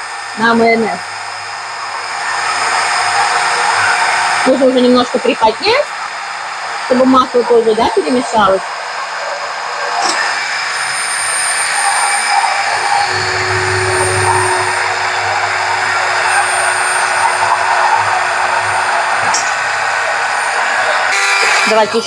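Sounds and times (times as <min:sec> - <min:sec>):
deeper hum: 0:12.6 - 0:21.1.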